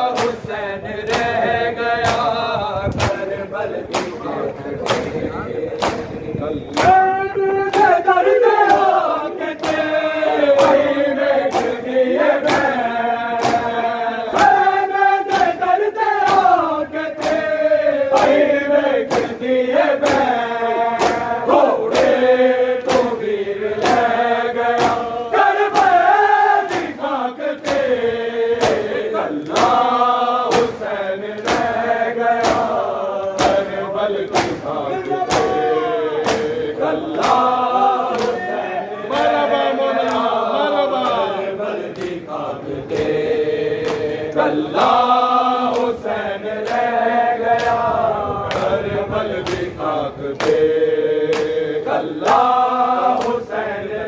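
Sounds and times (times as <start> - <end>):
men chanting in unison: 0.0 - 54.0
hands slapping bare chests: 0.1 - 0.5, 1.1 - 3.2, 3.9 - 4.2, 4.8 - 5.1, 5.8 - 7.1, 7.7 - 15.6, 16.2 - 19.4, 20.0 - 22.2, 22.8 - 23.2, 23.8 - 28.0, 28.6 - 31.8, 32.4 - 33.7, 34.3 - 39.4, 40.0 - 40.4, 41.0 - 42.3, 42.9 - 45.0, 47.6 - 47.9, 48.5 - 48.8, 50.4 - 50.7, 51.3 - 51.6, 52.2 - 53.4.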